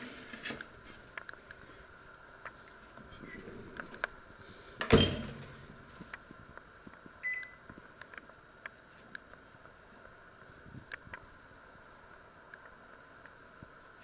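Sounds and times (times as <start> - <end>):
control panel beep: 7.2 - 7.6.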